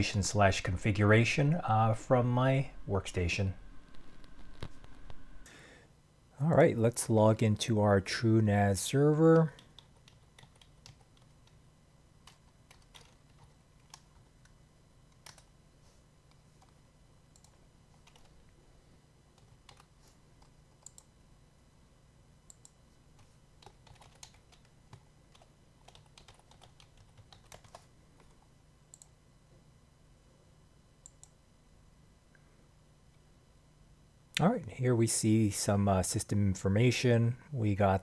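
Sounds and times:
faint low hum: 0.0s - 38.0s
computer keyboard typing: 9.4s - 11.6s, 12.2s - 15.5s, 17.4s - 18.4s, 19.4s - 21.1s, 23.6s - 29.1s.

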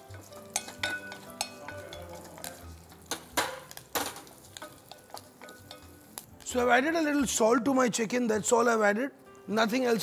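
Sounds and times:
spices frying in hot oil: 0.0s - 7.4s
spatula knocking saucepan: 0.1s - 5.9s.

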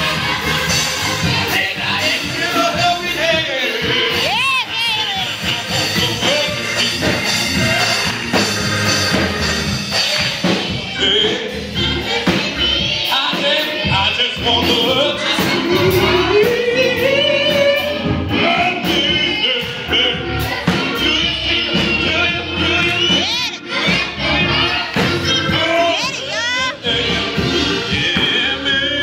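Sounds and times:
gospel choir singing: 0.0s - 29.0s
congregation clapping along: 5.3s - 10.8s.

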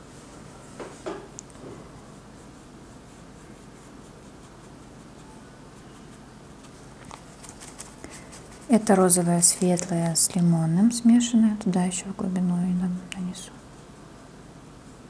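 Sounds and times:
steady low hiss: 0.0s - 15.0s
brush scratching on canvas: 1.7s - 10.2s, 12.7s - 15.0s.

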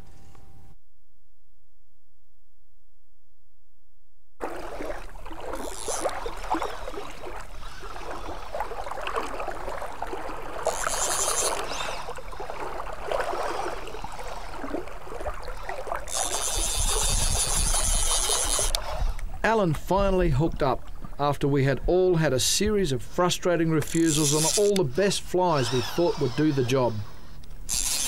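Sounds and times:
fishing reel drag buzzing: 4.4s - 19.3s, 23.8s - 28.0s
water sloshing and splashing: 4.4s - 21.9s.

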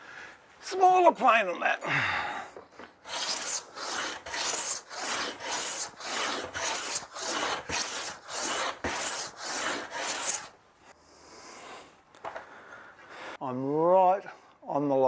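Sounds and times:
hand plane shaving wood: 3.0s - 10.5s.

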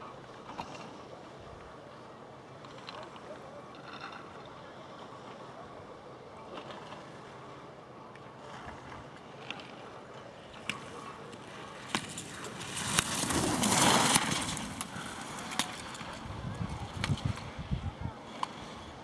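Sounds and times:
skis scraping on hard snow: 11.8s - 16.2s.

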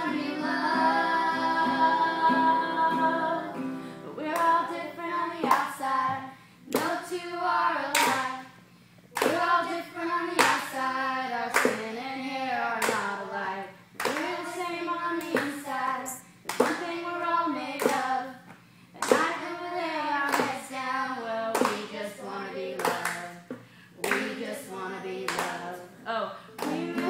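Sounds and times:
children singing: 0.0s - 6.3s, 26.6s - 27.0s
hands clapping: 5.4s - 5.7s, 6.7s - 7.0s, 7.9s - 8.3s, 9.2s - 9.5s, 11.5s - 11.8s, 12.8s - 13.1s, 14.0s - 14.4s, 15.2s - 15.6s, 16.5s - 16.9s, 19.0s - 19.4s, 20.3s - 20.6s, 21.5s - 21.9s, 22.8s - 24.4s, 25.3s - 25.7s, 26.6s - 27.0s.

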